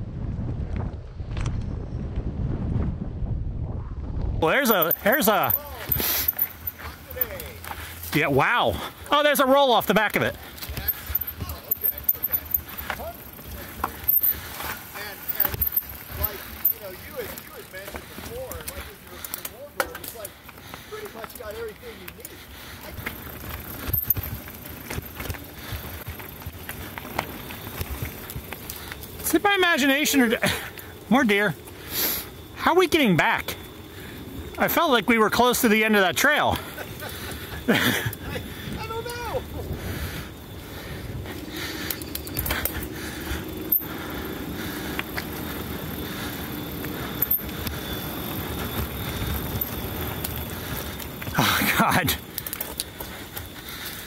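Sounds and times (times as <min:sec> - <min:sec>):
wind buffeting microphone: 0:00.0 - 0:06.0, 0:36.8 - 0:51.3
bike tyres on dirt and leaves: 0:04.1 - 0:54.0
bike knocking and rattling: 0:04.4 - 0:54.0.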